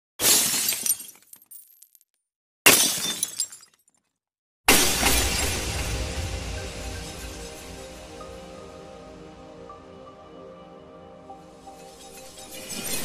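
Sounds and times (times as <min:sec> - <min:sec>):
glass shattering: 0:00.2 - 0:02.0, 0:02.7 - 0:04.1, 0:04.7 - 0:07.7
music: 0:04.8 - 0:13.0
low rumble: 0:04.9 - 0:10.0.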